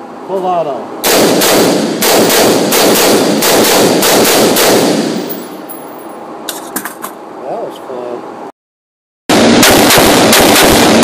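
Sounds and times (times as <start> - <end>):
rapid gunshots echoing: 1.0 - 5.4, 9.3 - 11.0.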